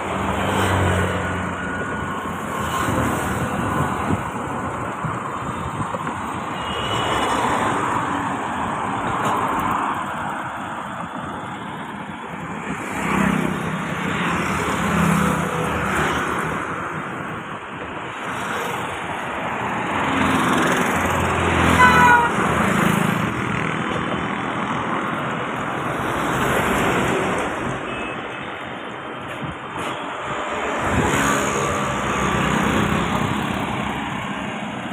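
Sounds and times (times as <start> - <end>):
passing vehicles engine and tyre noise: 0.0 - 34.9
vehicle horn toot: 6.6 - 7.3, 21.7 - 22.4.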